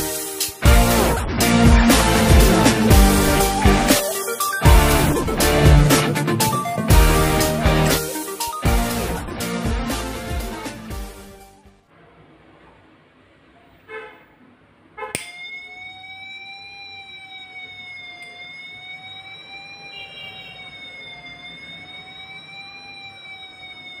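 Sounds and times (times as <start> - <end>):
electronic siren rising and falling: 0.7 - 9.3, 15.4 - 24.0.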